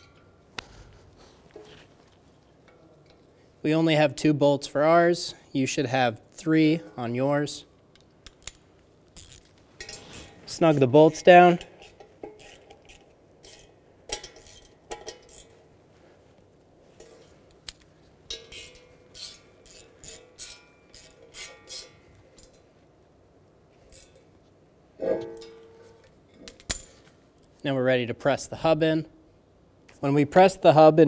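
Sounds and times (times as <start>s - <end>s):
ratchet clicking: 9.2s - 10.4s, 11.6s - 15.5s, 17.7s - 22.6s
ringing metal clink: 25.1s - 26.0s.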